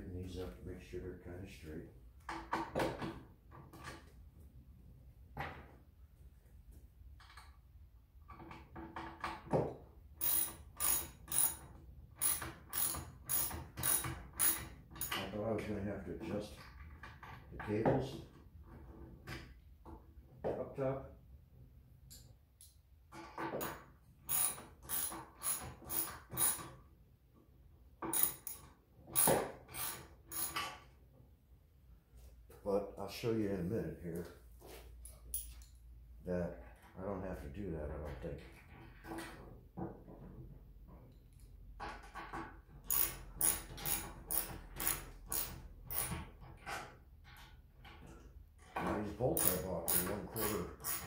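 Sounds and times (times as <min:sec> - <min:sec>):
ratchet wrench clicking: 0:10.2 - 0:11.6, 0:12.2 - 0:15.2, 0:24.3 - 0:26.6, 0:28.1 - 0:28.6, 0:42.9 - 0:46.3, 0:49.4 - 0:51.0.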